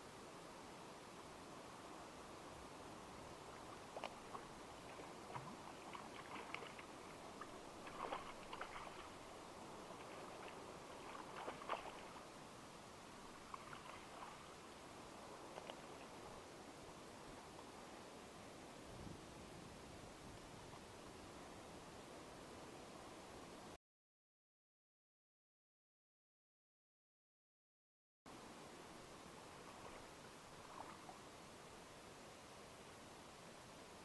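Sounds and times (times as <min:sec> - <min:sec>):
steady hiss: 0:00.0 - 0:23.8, 0:28.3 - 0:34.0
fish splashing in water: 0:03.9 - 0:09.3, 0:10.0 - 0:12.2, 0:13.4 - 0:14.5.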